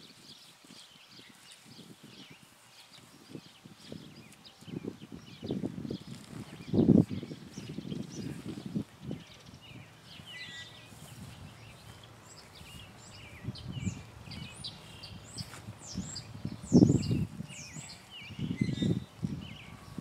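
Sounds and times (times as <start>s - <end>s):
birds chirping: 0.3s - 20.0s.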